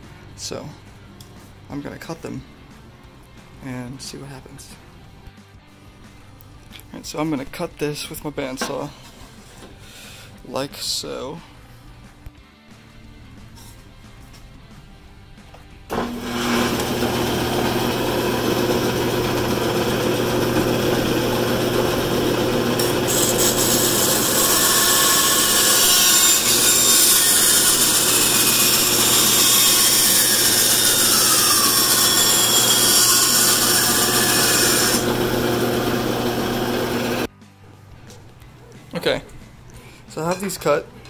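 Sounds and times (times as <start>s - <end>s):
bandsaw humming: 15.9s - 37.3s.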